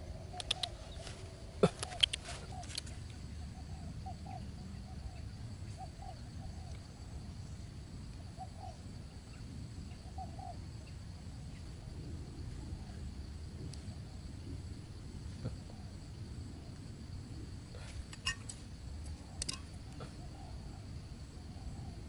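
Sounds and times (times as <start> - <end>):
insects singing: 0.0 - 22.0
low steady rumble: 0.0 - 22.0.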